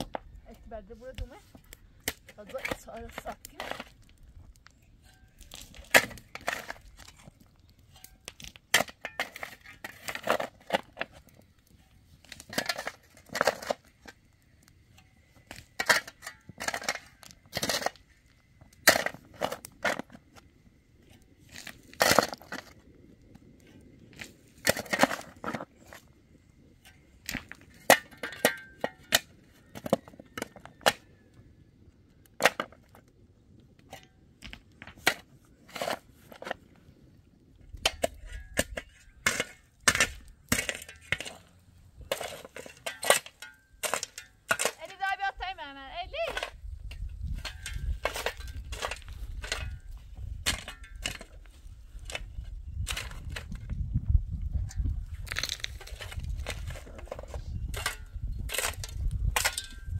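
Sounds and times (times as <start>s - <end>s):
shovel scraping stony soil: 0.5s - 14.3s, 15.3s - 20.4s, 21.0s - 22.8s, 24.1s - 26.1s, 34.8s - 36.7s, 37.8s - 59.9s.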